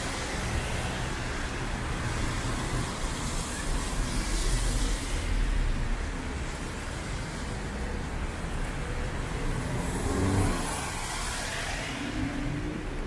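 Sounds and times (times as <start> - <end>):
tyres hissing on wet road: 0.0 - 13.0
vehicle passing close: 9.8 - 11.2.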